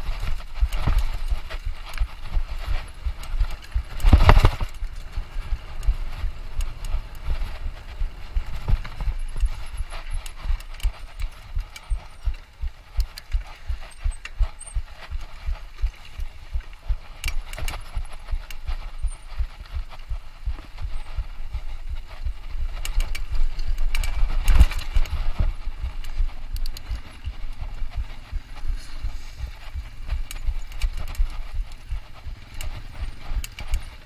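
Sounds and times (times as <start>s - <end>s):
mountain bike rattling over rough ground: 0.0s - 34.0s.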